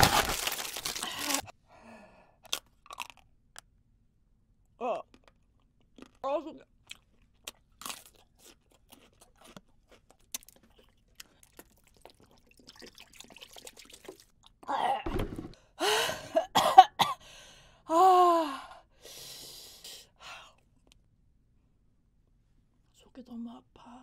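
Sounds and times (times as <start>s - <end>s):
woman coughing and spluttering: 16.3s - 17.2s.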